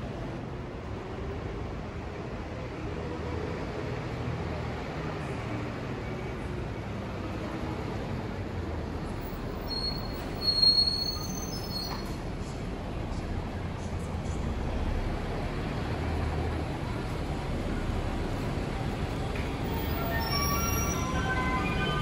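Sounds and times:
bus engine rumble: 0:00.0 - 0:22.0
street traffic: 0:00.0 - 0:22.0
high-pitched squeal: 0:19.6 - 0:22.0.

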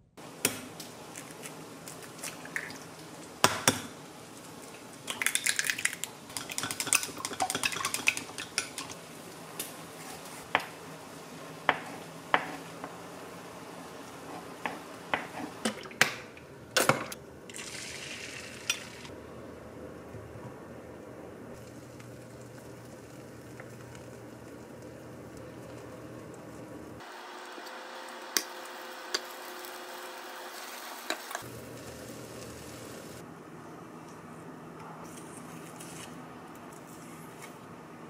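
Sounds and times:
egg hissing in hot pan: 0:17.5 - 0:19.1, 0:27.0 - 0:33.2.

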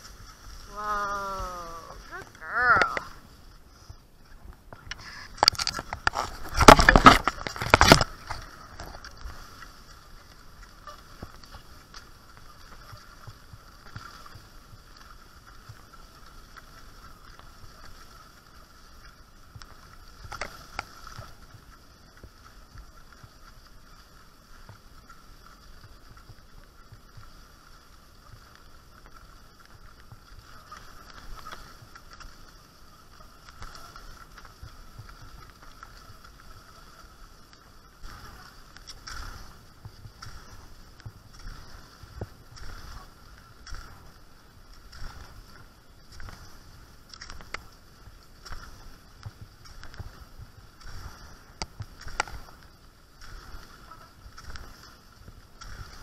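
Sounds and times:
skis hissing on snow: 0:00.0 - 0:04.0, 0:08.1 - 0:56.0
rustling and knocking near microphone: 0:04.6 - 0:09.3.

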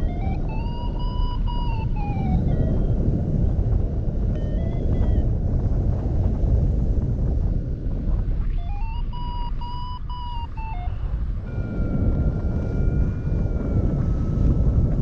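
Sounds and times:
faint electronic tone: 0:00.0 - 0:02.9, 0:08.4 - 0:15.0
wind rushing over microphone: 0:00.0 - 0:15.0.

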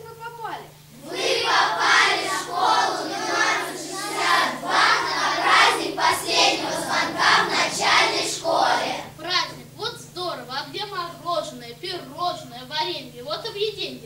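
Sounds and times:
steady low hum: 0:00.0 - 0:14.0
children singing: 0:01.0 - 0:09.1.

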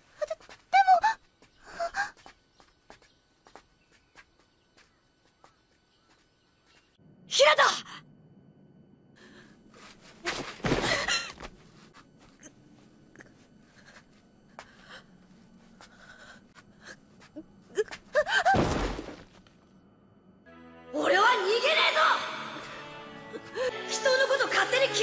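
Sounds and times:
body thudding on ground: 0:10.2 - 0:11.6, 0:18.4 - 0:19.5.

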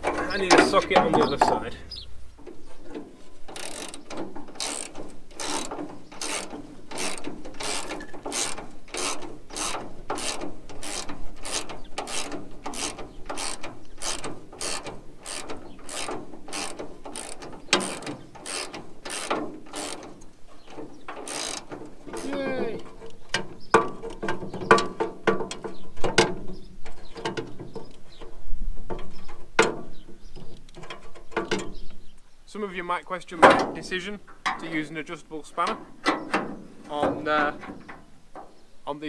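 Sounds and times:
socket ratchet clicking: 0:03.5 - 0:20.3, 0:21.1 - 0:22.3.

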